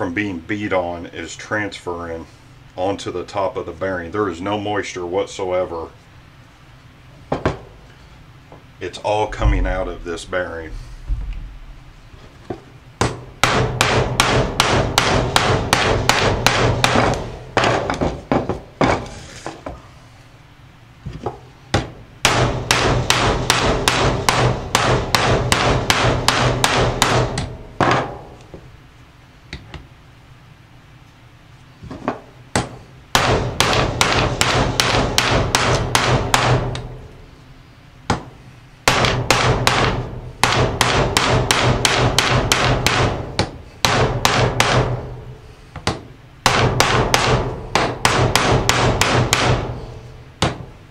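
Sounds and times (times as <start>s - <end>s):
hammer striking metal bearing: 32.6s - 36.9s.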